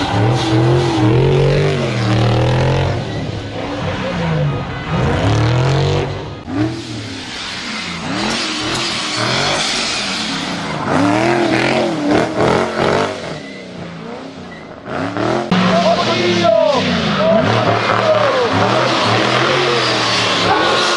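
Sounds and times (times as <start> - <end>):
car engine revving hard: 0.0 - 20.9.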